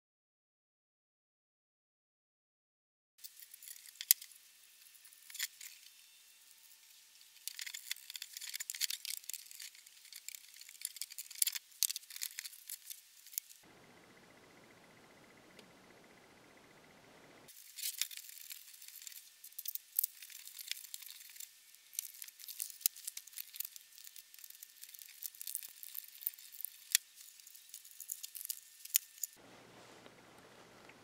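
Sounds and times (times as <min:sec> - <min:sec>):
plastic clicks and crinkling: 0:07.4 - 0:13.6, 0:17.7 - 0:29.4.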